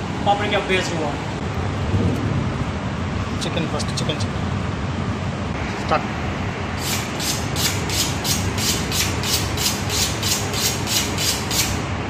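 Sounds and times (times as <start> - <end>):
knife scraping on sharpening steel: 6.8 - 11.8.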